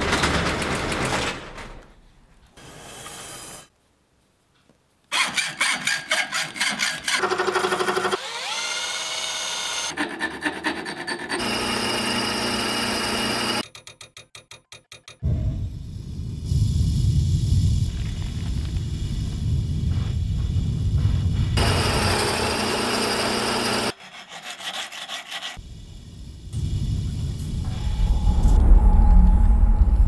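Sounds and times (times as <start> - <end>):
drill boring into steel: 5.2 - 9.9, 11.4 - 13.6, 21.6 - 23.9.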